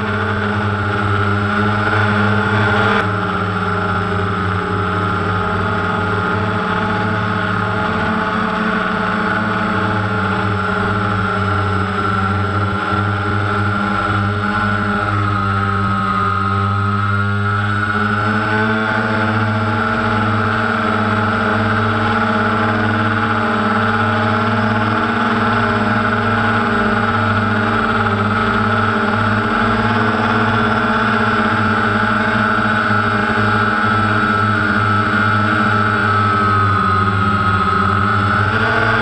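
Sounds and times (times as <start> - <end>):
quadcopter propellers humming: 0.0 - 39.0.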